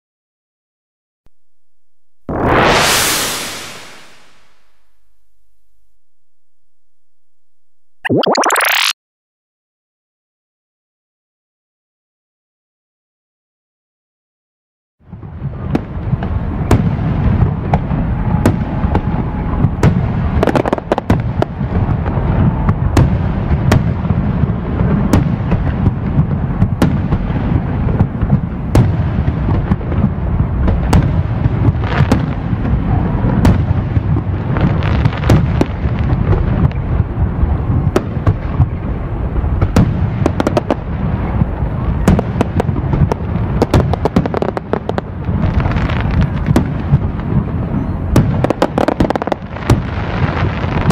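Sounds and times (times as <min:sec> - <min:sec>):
fireworks booming: 0:02.2 - 0:05.6, 0:15.1 - 0:50.9
fireworks sharp cracks: 0:15.2 - 0:37.2, 0:39.5 - 0:47.5, 0:48.1 - 0:50.9.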